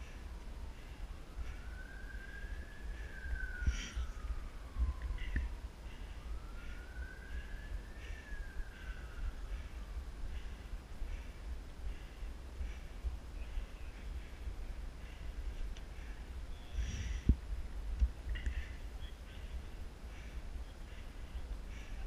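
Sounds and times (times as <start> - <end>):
faint siren wailing: 0.0 - 17.3
low rumble on microphone: 0.0 - 22.0.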